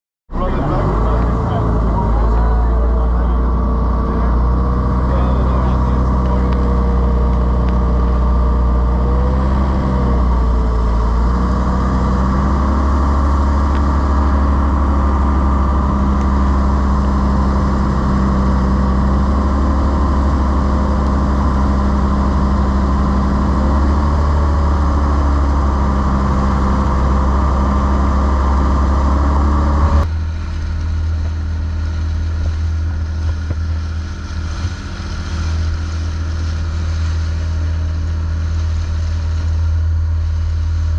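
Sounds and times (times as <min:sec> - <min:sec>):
boat engine running: 0:00.3 - 0:40.9
dull engine rumble: 0:00.3 - 0:40.9.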